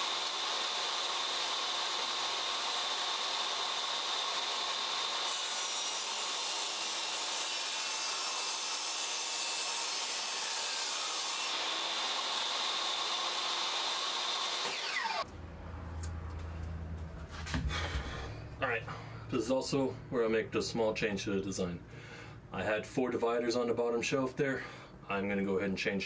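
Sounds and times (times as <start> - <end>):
saw cutting wood: 0.0 - 15.3
table saw whining: 0.0 - 15.3.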